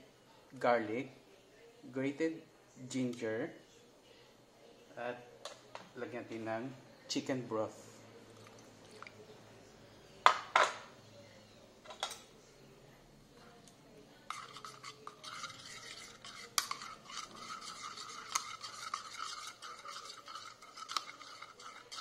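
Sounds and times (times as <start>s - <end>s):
metal ladle stirring in ceramic bowl: 14.2s - 22.0s.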